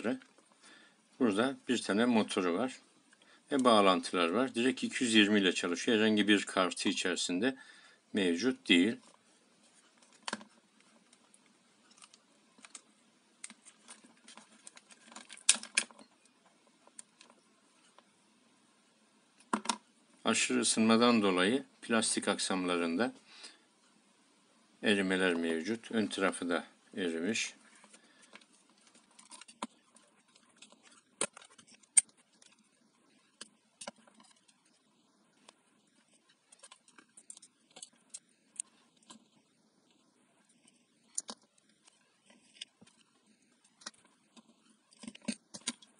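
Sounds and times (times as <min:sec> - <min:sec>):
hard plastic parts clicking: 0:12.0 - 0:16.0.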